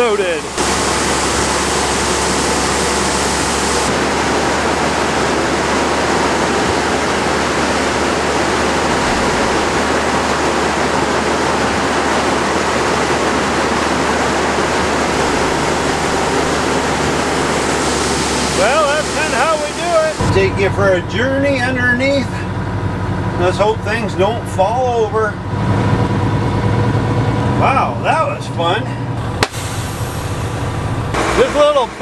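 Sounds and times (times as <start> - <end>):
grain conveyor rushing: 0.0 - 22.5, 27.7 - 32.0.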